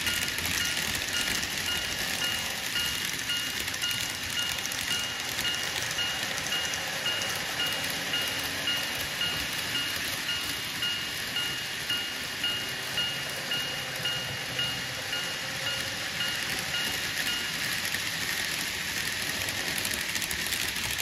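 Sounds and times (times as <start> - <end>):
model train wheels clicking on rail: 0.0 - 21.0.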